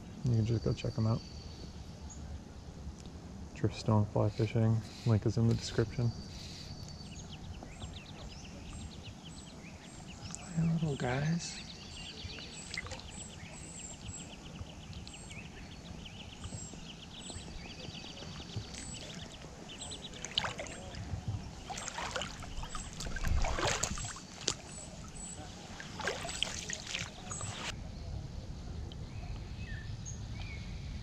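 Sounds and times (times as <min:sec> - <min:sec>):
small birds chirping: 0:00.0 - 0:31.0
water lapping on rocks: 0:18.2 - 0:27.7.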